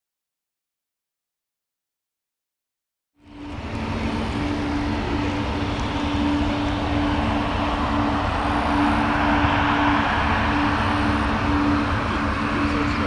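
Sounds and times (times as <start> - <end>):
jet engines rushing: 3.2 - 13.0.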